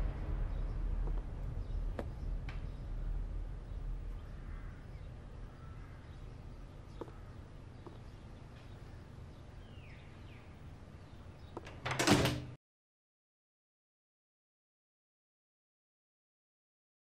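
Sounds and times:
low steady rumble: 0:00.0 - 0:11.5
bird chirps: 0:00.0 - 0:11.7
wooden door click: 0:11.5 - 0:12.6.

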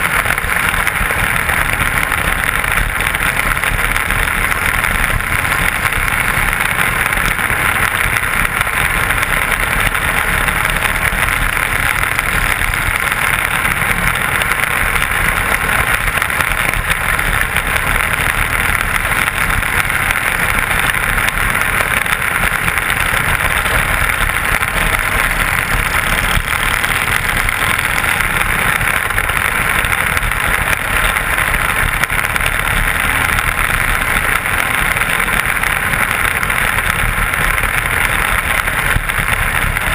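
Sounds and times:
race car engine running: 0:00.0 - 0:39.9.

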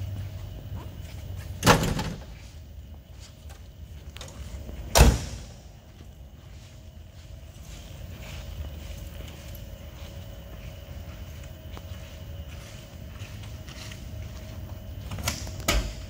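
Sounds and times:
car doors shutting: 0:04.2 - 0:05.6.

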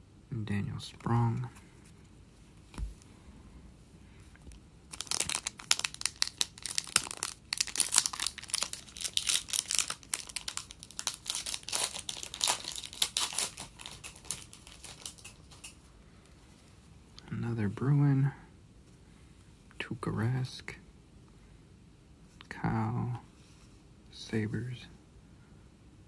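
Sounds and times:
foil wrapper tearing and crinkling: 0:04.9 - 0:15.6.

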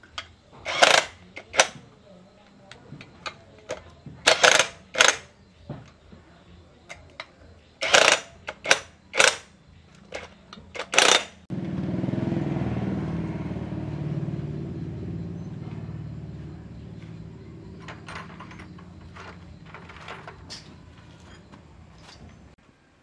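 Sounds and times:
cordless drill bursts: 0:00.7 - 0:01.8, 0:04.3 - 0:05.2, 0:07.8 - 0:09.4, 0:10.8 - 0:11.4
low mechanical rumble: 0:11.5 - 0:22.6.

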